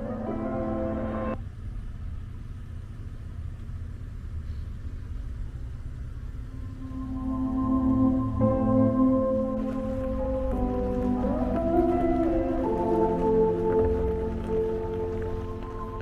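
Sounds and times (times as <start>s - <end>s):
soft background music: 0.0s - 1.4s, 6.5s - 16.0s
truck engine rumble: 0.0s - 16.0s.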